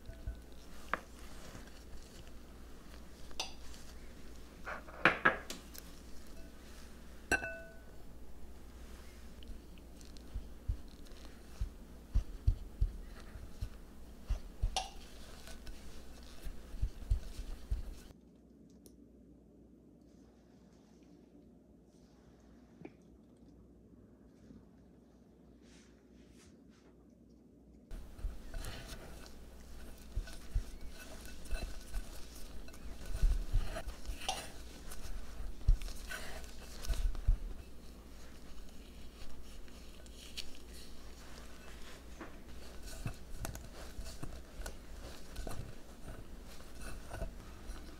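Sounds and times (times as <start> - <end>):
utensil scraping a mixing bowl: 0.0 - 5.0, 5.6 - 18.1, 27.9 - 47.9.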